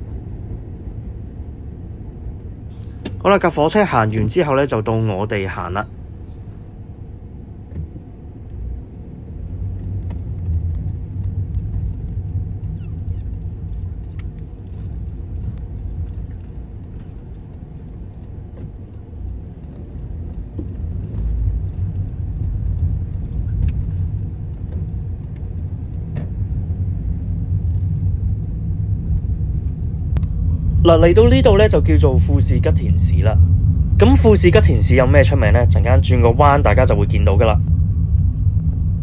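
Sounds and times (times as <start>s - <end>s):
car engine and road rumble: 0.0s - 39.0s
faint clicks: 9.4s - 26.2s.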